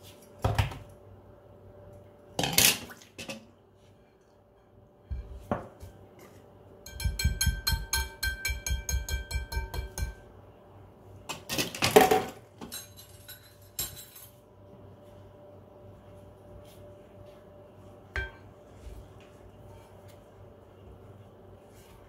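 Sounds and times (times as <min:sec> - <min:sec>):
whisk clinking in glass bowl: 0:06.8 - 0:10.2.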